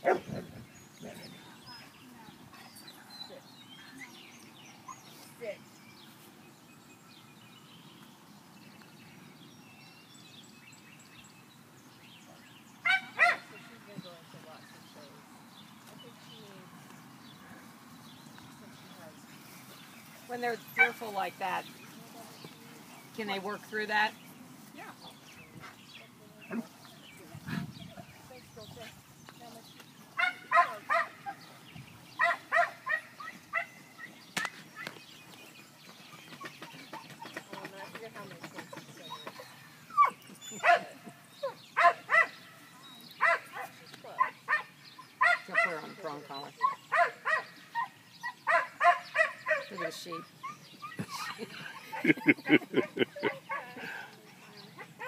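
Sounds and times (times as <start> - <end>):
dog barking: 0.0 - 0.3, 12.9 - 13.4, 30.2 - 31.4, 32.2 - 33.7, 40.0 - 40.9, 41.8 - 42.4, 43.2 - 45.8, 46.6 - 47.5, 48.5 - 49.8
birds chirping and whistling: 0.0 - 55.0.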